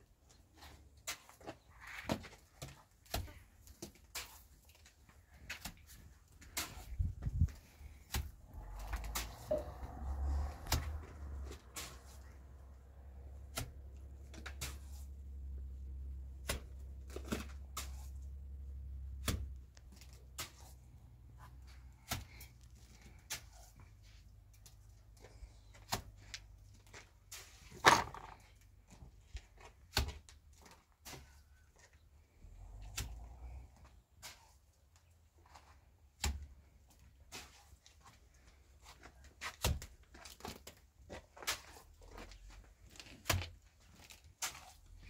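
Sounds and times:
low hum: 8.3s - 14.1s
knocks and clatters of handling: 22.0s - 32.0s.

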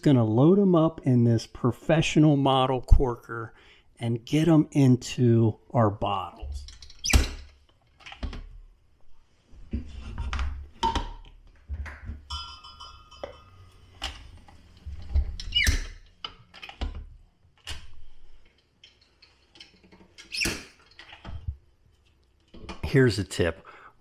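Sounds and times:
corks squeaking into bottles: 6.6s - 8.3s, 15.0s - 16.8s, 18.8s - 21.4s
glass bottles being set down: 11.9s - 15.4s.

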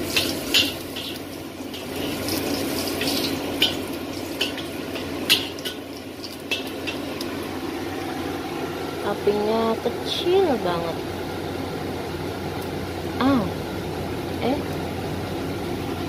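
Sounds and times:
metal spatula scraping wok: 0.0s - 5.8s
food sizzling in oil: 0.0s - 10.2s
extractor fan running: 0.0s - 16.0s.

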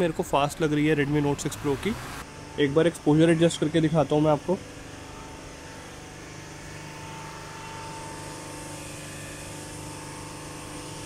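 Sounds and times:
machine drone with hum: 0.0s - 11.0s.

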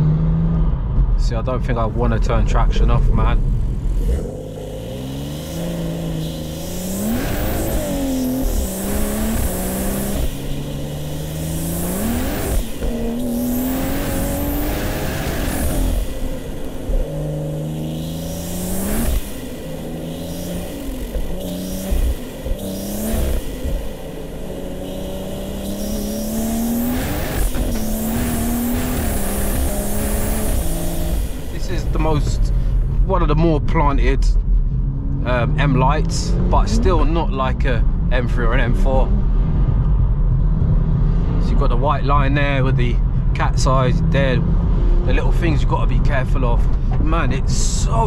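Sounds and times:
car engine accelerating through gears: 0.0s - 33.3s, 34.0s - 48.0s.

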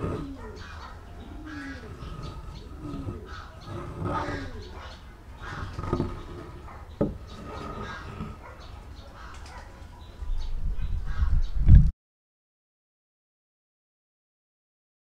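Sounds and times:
doves cooing: 0.0s - 10.4s
wood knocking on wood: 1.9s - 4.6s, 5.4s - 8.4s.

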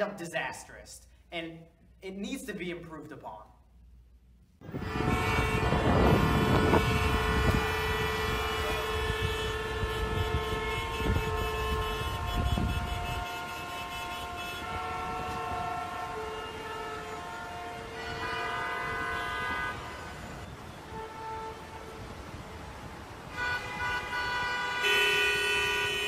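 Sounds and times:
vehicle horns blasting: 4.6s - 22.5s, 23.2s - 26.0s.

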